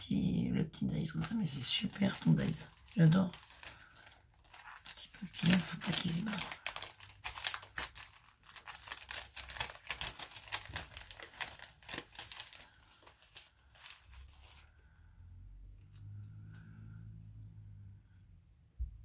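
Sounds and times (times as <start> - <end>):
packaging crinkling: 1.0 - 14.8.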